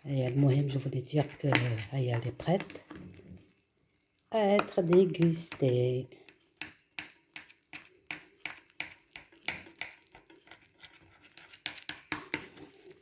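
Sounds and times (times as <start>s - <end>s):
knife scraping baking dish: 10.2s - 13.0s.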